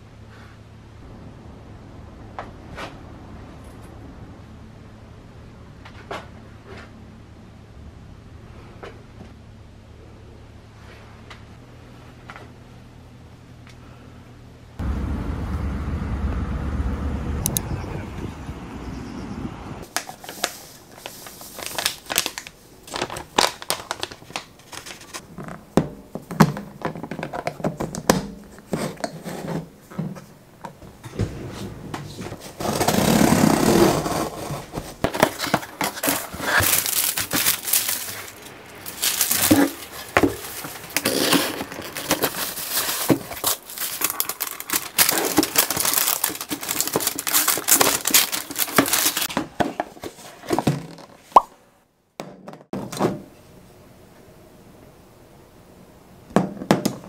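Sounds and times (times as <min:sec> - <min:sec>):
plastic bag crinkling: 0:20.0 - 0:25.2, 0:34.8 - 0:49.3
scissors slitting packing tape: 0:40.9 - 0:49.3.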